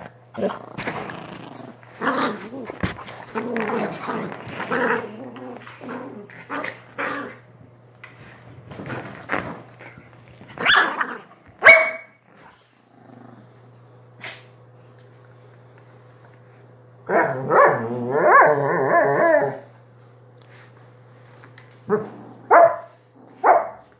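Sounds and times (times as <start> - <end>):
dog growling: 0.0 - 7.5, 12.9 - 13.7, 17.1 - 19.7, 21.9 - 22.5
dog barks: 11.6 - 12.2, 17.1 - 18.5, 22.5 - 23.8.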